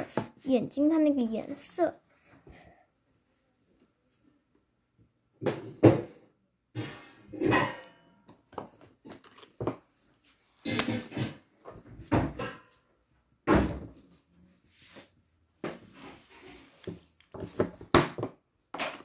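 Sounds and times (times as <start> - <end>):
markers and paper knocks and scuffs: 14.8 - 18.1.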